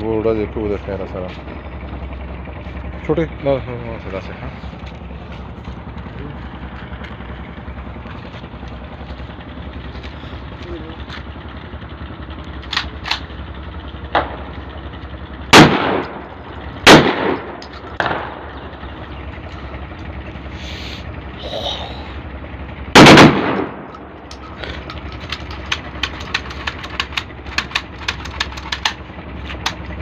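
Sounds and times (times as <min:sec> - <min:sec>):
shotgun blasts: 0:15.5 - 0:16.2, 0:16.8 - 0:18.5, 0:22.9 - 0:23.9.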